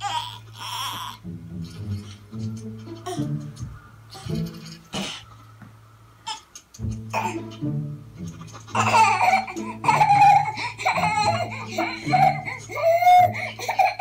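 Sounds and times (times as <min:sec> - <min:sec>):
baby squealing and laughing: 0:00.0 - 0:01.2, 0:08.5 - 0:14.0.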